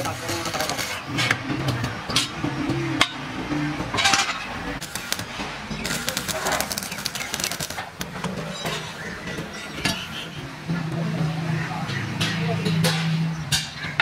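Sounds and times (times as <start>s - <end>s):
welding arc crackling: 0.0s - 1.3s, 4.6s - 8.6s.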